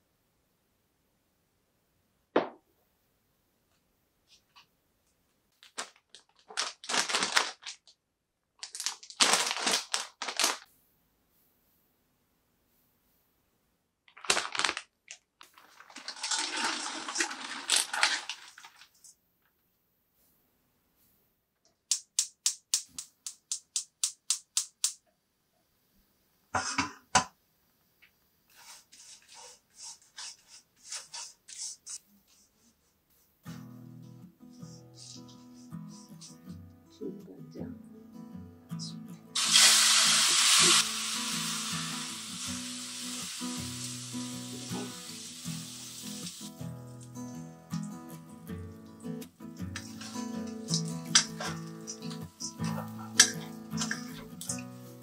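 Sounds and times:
plastic bag crinkling: 5.6s - 8.0s, 8.6s - 10.7s, 14.1s - 19.1s
dried fish stirred in a wok: 28.5s - 32.4s
music: 33.4s - 55.0s.

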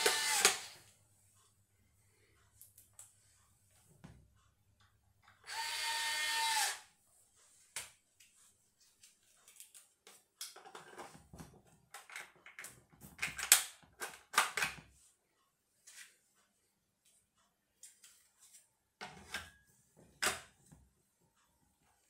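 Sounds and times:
electric screwdriver running: 0.0s - 0.8s, 5.5s - 6.8s.

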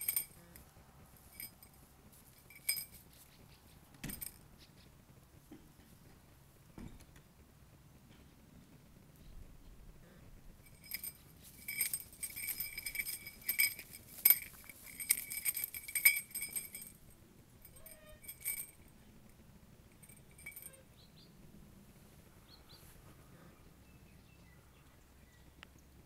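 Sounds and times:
small metal bell jingling: 0.0s - 0.6s, 1.2s - 4.5s, 10.6s - 20.9s.

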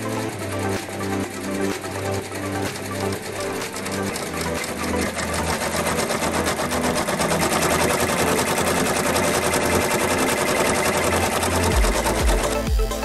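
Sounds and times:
embroidery machine needle clatter: 0.0s - 12.6s.

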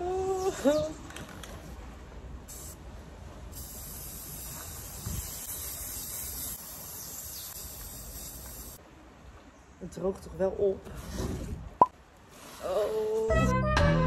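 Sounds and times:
spray paint can hissing: 2.5s - 2.8s, 3.5s - 8.8s.

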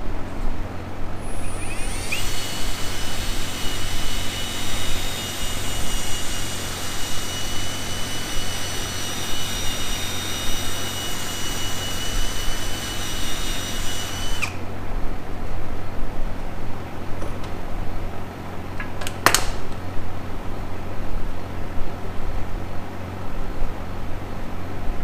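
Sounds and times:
cordless power tool whining: 1.2s - 14.7s.

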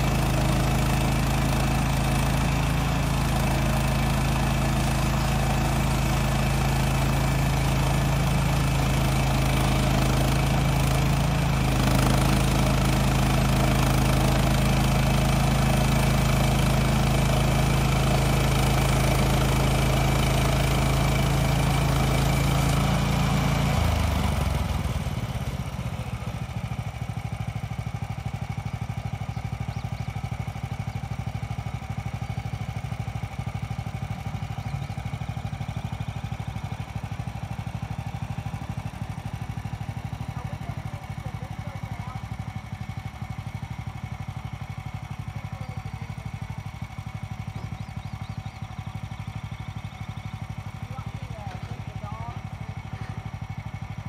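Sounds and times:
bandsaw blade sawing log: 0.0s - 25.6s
gas engine running: 0.0s - 54.0s.

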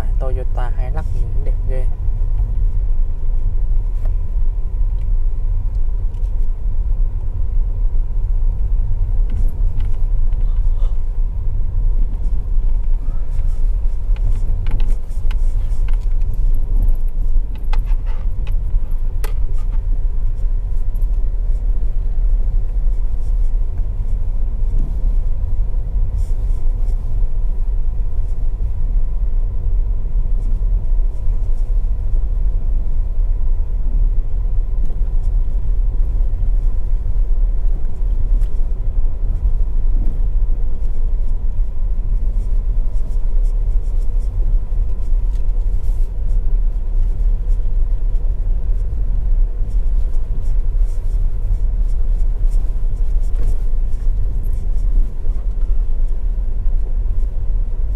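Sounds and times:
engine and tyres rumbling on rough track: 0.0s - 57.9s.

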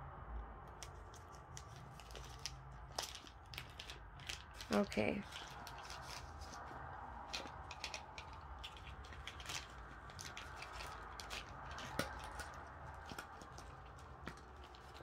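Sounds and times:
plastic bag crinkling: 0.7s - 15.0s
plastic tools clicking: 7.2s - 15.0s.

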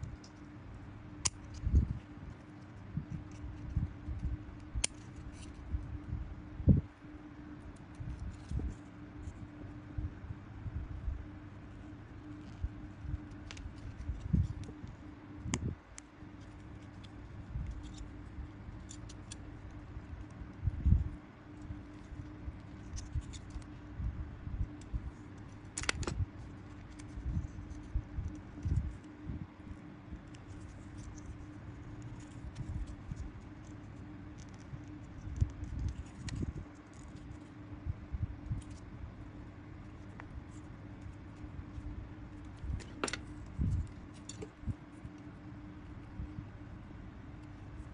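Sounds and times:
light scratches and clicks: 0.0s - 6.1s, 7.4s - 9.9s, 11.5s - 24.0s, 24.6s - 39.0s, 39.8s - 46.4s
steady low hum: 0.0s - 47.9s
scissors snipping paper: 1.2s - 1.9s, 15.9s - 20.4s, 24.7s - 29.1s
fingers bending thin plastic: 11.9s - 24.0s, 24.6s - 37.6s.

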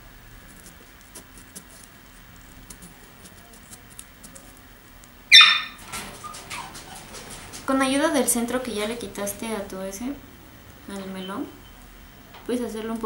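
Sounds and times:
melon squeak: 5.3s - 6.8s.

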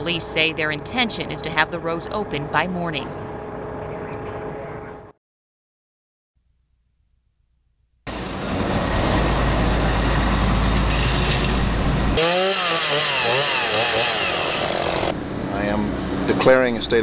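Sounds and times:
heavy engine rumbling: 8.1s - 12.2s
chainsaw cutting wood: 12.2s - 15.2s.

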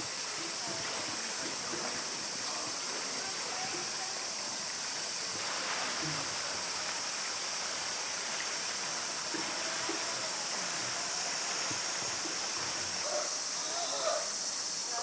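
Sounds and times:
cicadas chorus: 0.0s - 15.0s.

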